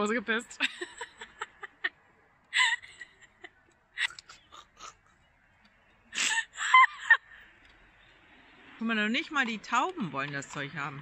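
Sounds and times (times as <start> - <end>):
woman's stifled laughter: 2.5 - 5.0, 6.2 - 7.4.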